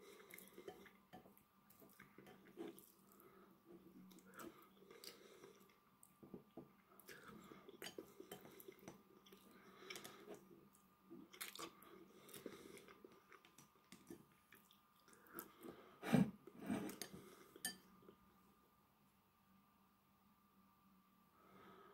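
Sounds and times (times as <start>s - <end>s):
chewing: 7.0s - 15.6s.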